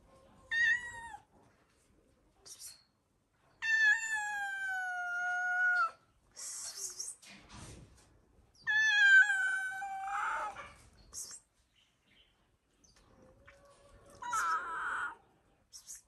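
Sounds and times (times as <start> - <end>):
animal calling: 13.4 - 15.2.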